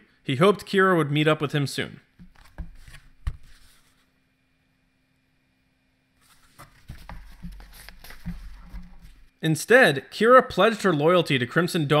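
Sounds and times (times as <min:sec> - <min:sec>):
soft knocks of book: 0:02.2 - 0:03.9, 0:06.3 - 0:09.2
book pages rustling: 0:02.2 - 0:04.1, 0:06.2 - 0:09.3.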